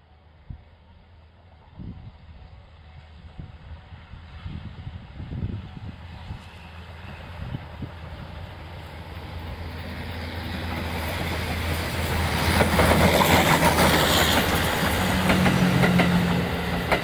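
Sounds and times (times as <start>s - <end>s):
steam locomotive passing: 0.0s - 17.0s
wheels clacking over rail joints: 10.5s - 17.0s.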